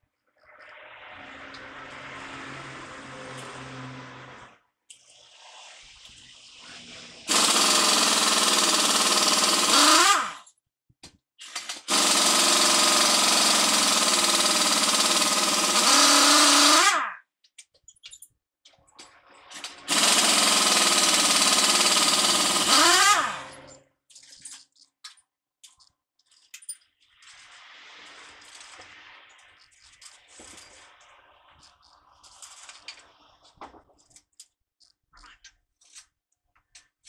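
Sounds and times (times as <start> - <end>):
pneumatic impact wrench: 5.0 - 10.5, 11.4 - 17.2, 19.5 - 23.8.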